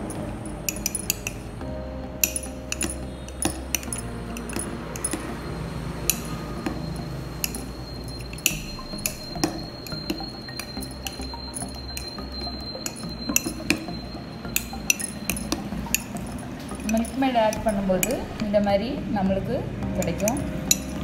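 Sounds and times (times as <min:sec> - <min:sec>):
spoon clinking against glass mug: 0:07.4 - 0:18.4.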